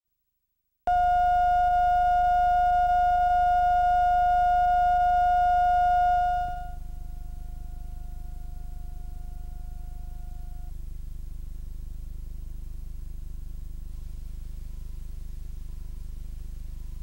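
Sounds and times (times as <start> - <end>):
steady test tone: 0.9 - 10.7
low hum: 0.9 - 11.7.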